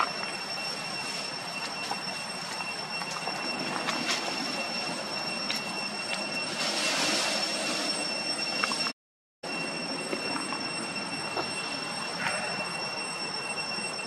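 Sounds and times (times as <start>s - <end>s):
high-pitched whine: 0.0s - 14.0s.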